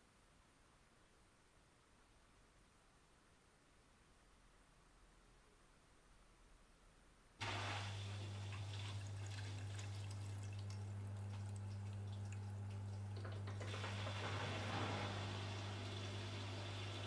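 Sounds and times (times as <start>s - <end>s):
washing machine pump humming: 7.4s - 17.0s
water hissing and dripping: 7.4s - 17.0s.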